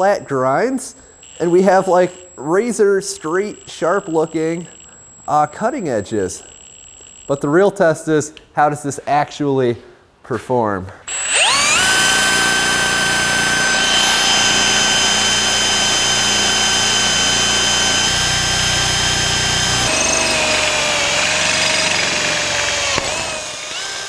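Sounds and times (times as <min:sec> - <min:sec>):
cordless drill whining: 0:01.2 - 0:07.4, 0:11.1 - 0:24.0
drill bit boring into steel: 0:01.2 - 0:07.4, 0:11.1 - 0:24.0.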